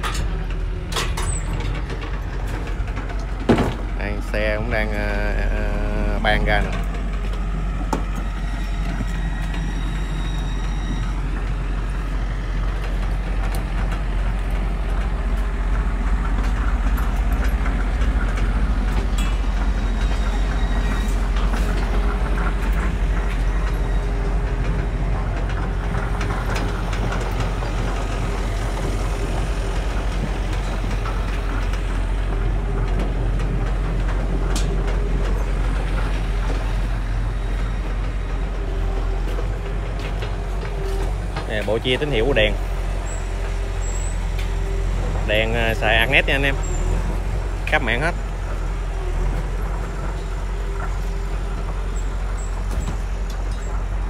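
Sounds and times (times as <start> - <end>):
light metal clanks: 0.0 - 3.9
excavator diesel engine droning: 0.0 - 54.0.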